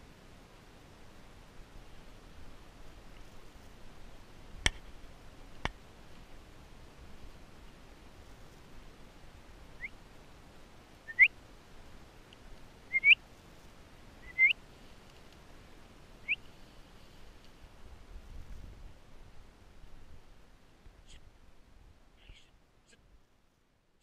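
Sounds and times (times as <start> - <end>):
faint outdoor hiss: 0.0 - 24.0
rising whistled chirps: 11.1 - 11.3, 12.9 - 13.2, 14.2 - 14.6.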